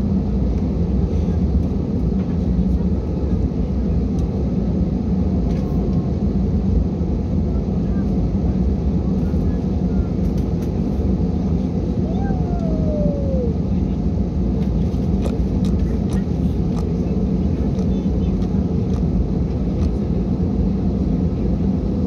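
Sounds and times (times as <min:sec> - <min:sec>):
jet engine and cabin rumble: 0:00.0 - 0:22.0.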